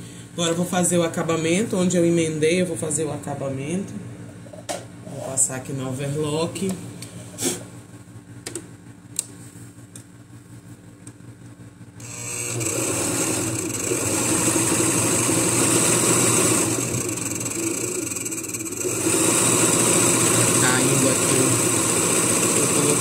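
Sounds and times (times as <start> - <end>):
overlock machine running: 12.0 - 23.0.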